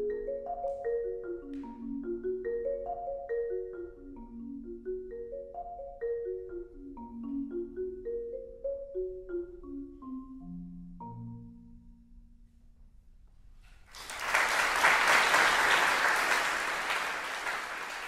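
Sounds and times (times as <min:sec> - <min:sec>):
marimba playing: 0:00.0 - 0:11.9
audience applause: 0:13.9 - 0:18.0.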